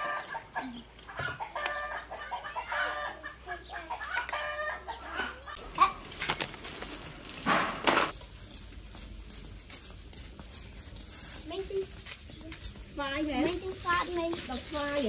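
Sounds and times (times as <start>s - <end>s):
chickens clucking: 0.0s - 6.2s
sharp clicks and rustles: 5.6s - 15.0s.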